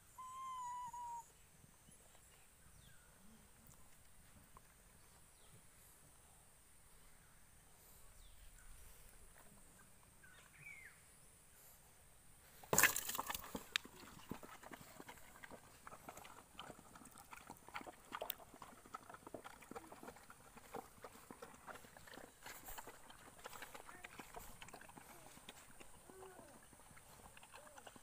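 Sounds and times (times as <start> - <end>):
dogs lapping and chewing: 12.8 - 28.0.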